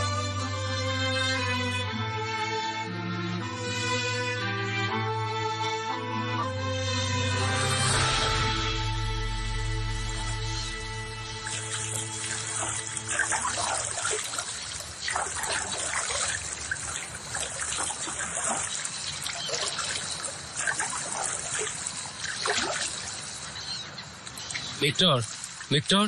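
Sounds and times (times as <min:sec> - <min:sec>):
water trickling and splashing: 0:07.4 - 0:26.0
oars pulling through water: 0:11.2 - 0:25.7.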